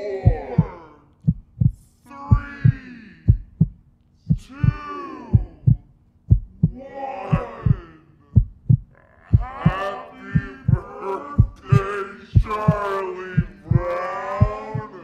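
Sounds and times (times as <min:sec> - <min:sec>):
people calling out: 0:00.0 - 0:01.2, 0:06.7 - 0:08.4, 0:09.0 - 0:15.0
steady low hum: 0:00.0 - 0:15.0
heartbeat thumps: 0:00.2 - 0:15.0
people laughing: 0:09.4 - 0:15.0.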